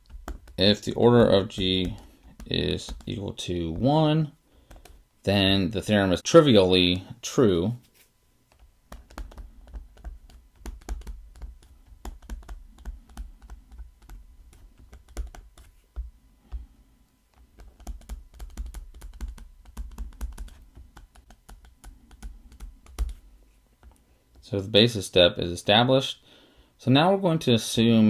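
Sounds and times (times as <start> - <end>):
stylus tapping on tablet: 0.0 - 3.2, 4.6 - 5.0, 8.5 - 16.6, 17.4 - 23.2.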